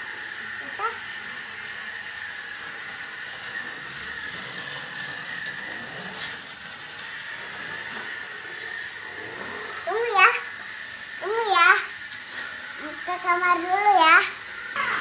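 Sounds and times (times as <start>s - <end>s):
faint high whine: 0.0s - 15.0s
mechanical whirring hum: 0.0s - 15.0s.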